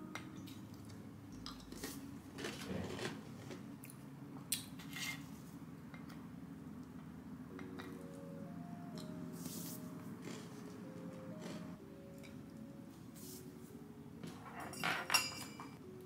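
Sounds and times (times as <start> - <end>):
crackers being chewed: 0.8 - 4.0, 10.2 - 12.4.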